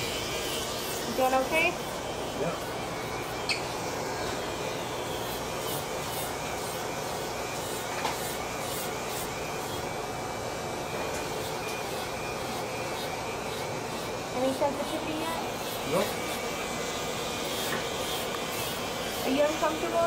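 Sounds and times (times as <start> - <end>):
electric nail file sanding skin: 0.0 - 20.0.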